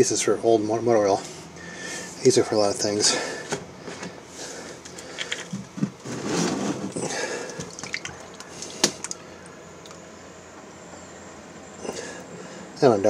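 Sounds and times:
oil pouring onto metal parts: 7.5s - 9.2s.

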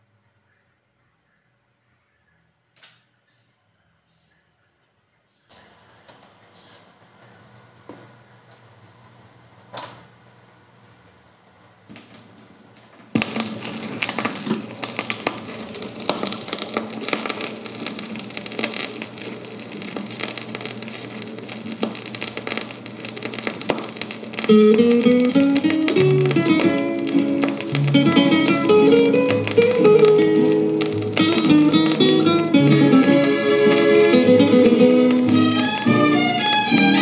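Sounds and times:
record crackle and clicks: 2.7s - 10.1s, 10.7s - 37.0s
music from vinyl record: 13.1s - 37.0s
plucked guitar music: 24.4s - 37.0s.

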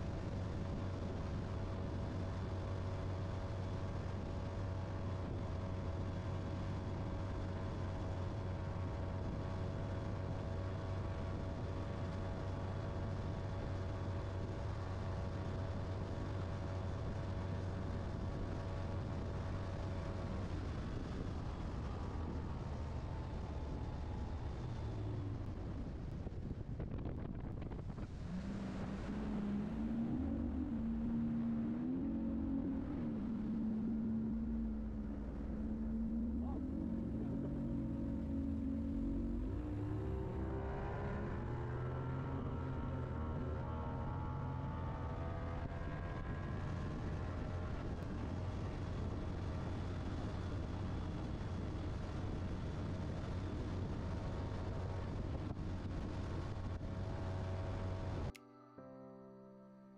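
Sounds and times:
wind buffeting microphone: 17.5s - 42.2s.

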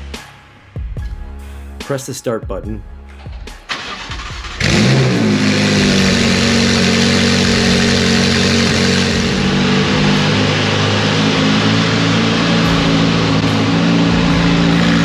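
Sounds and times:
sports car engine starting and idling: 3.0s - 15.0s.

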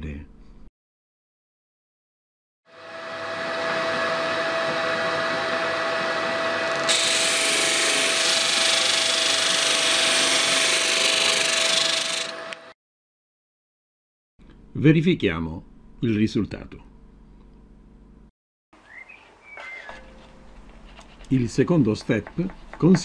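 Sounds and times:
electric disc sander humming: 2.8s - 12.7s
wood sanding hiss: 6.9s - 12.2s.

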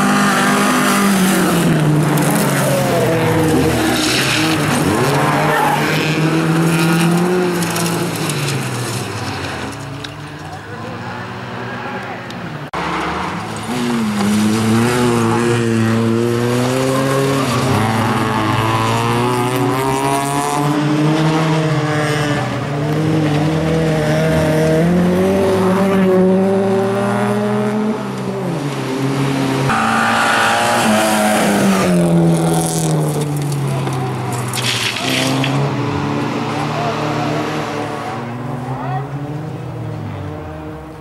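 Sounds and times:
tyres squealing and skidding: 0.0s - 9.9s, 16.7s - 19.4s, 29.7s - 35.6s.

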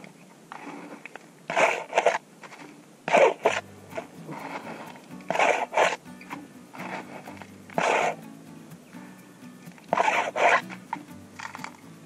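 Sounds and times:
plastic scoop scraping gravelly soil: 0.5s - 6.0s, 6.7s - 8.2s, 9.8s - 11.8s.

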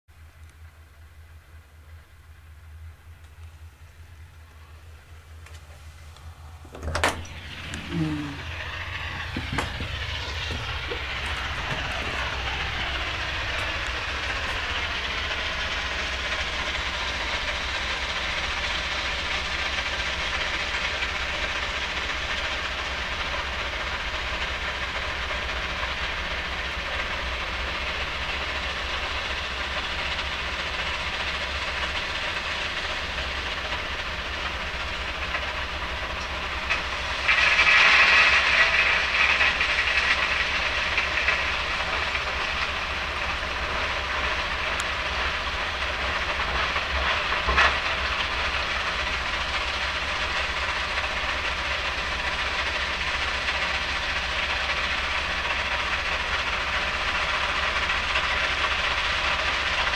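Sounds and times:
low machinery hum: 0.1s - 59.9s
excavator dumping stone into wagon: 6.6s - 13.3s, 36.6s - 41.6s.

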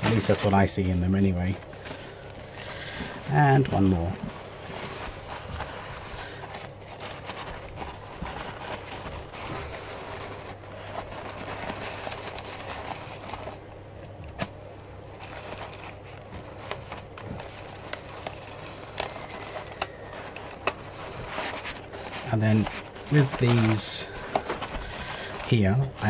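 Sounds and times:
paper napkins rustling: 0.0s - 26.0s.

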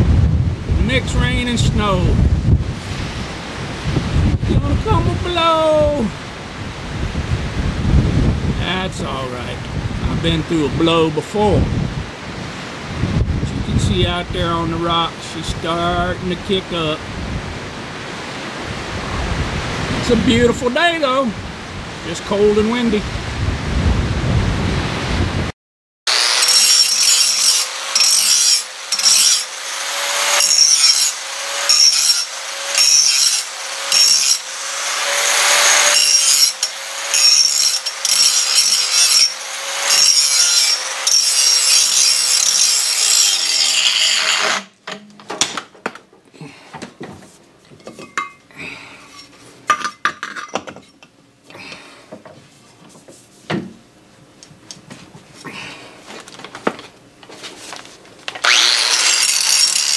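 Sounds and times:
wind on microphone: 0.0s - 14.8s, 17.0s - 20.7s, 23.0s - 25.5s
angle grinder grinding metal: 26.1s - 44.8s, 58.4s - 59.9s
metal tools clattering: 47.8s - 48.4s, 49.1s - 51.1s.

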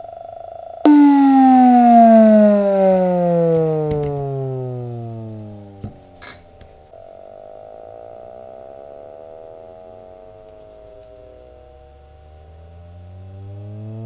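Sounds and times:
bass test tone sweeps: 0.9s - 6.2s, 12.5s - 14.0s.

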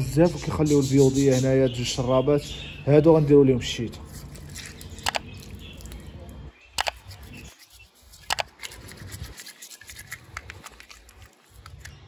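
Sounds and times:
toothbrush scrubbing plastic cup: 4.0s - 6.0s, 6.8s - 12.0s
sharp plastic clicks: 4.9s - 5.4s, 6.8s - 7.2s, 8.2s - 8.9s.

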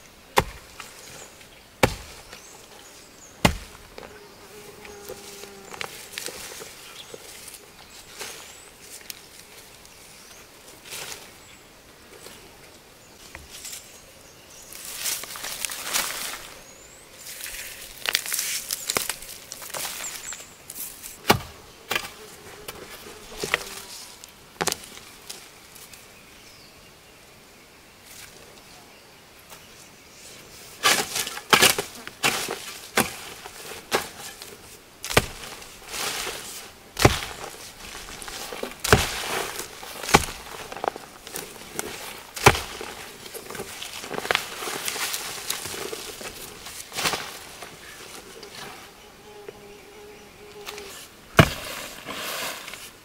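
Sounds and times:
soil and roots crumbling: 0.0s - 14.0s, 14.6s - 26.0s, 30.7s - 49.0s, 50.5s - 53.0s
hoe striking dry soil: 0.4s - 2.6s, 3.4s - 4.2s, 21.2s - 22.8s, 30.8s - 47.7s, 51.4s - 52.9s.

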